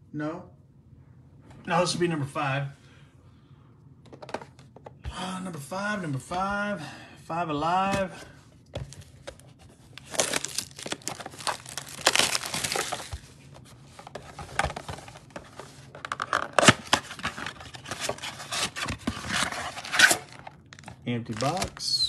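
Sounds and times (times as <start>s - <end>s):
cardboard box opening: 8.8s - 13.2s
foil packs rustling: 8.9s - 13.4s, 16.4s - 22.0s
shrink wrap crinkling and tearing: 9.9s - 13.4s, 16.2s - 22.0s.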